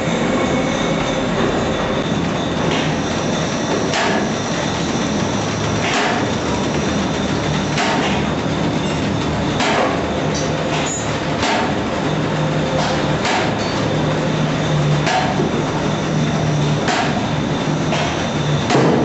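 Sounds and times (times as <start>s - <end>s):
machine clattering: 0.2s - 19.0s
sharp machine knock: 3.6s - 4.4s, 5.3s - 8.4s, 9.5s - 10.2s, 10.8s - 11.8s, 12.8s - 13.7s, 15.0s - 15.5s, 16.8s - 17.3s, 17.9s - 19.0s.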